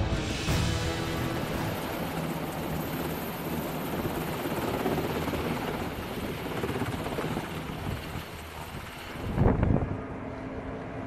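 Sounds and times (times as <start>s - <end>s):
helicopter rotor and turbine: 0.0s - 11.0s.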